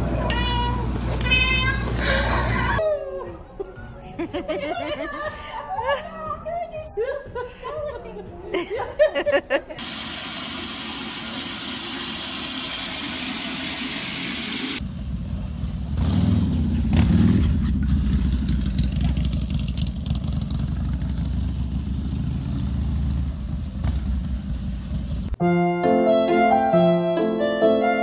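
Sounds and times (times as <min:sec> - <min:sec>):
tap water running into a sink: 0:09.8 - 0:14.8
motorcycle engine humming: 0:14.8 - 0:25.4.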